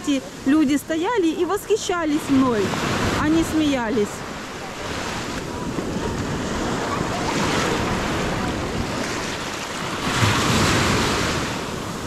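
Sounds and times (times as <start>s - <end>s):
surf washing onto beach: 0.0s - 12.0s.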